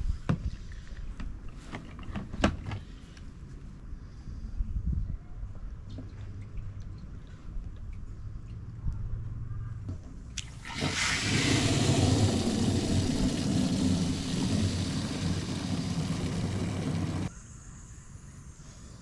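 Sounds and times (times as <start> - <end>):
water rushing into tank: 10.4 - 17.3.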